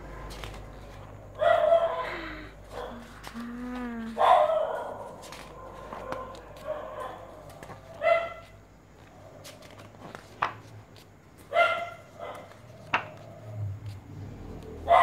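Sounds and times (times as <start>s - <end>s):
dog barking: 1.3s - 2.1s, 2.7s - 3.1s, 4.2s - 8.6s, 11.5s - 13.6s, 14.8s - 15.0s.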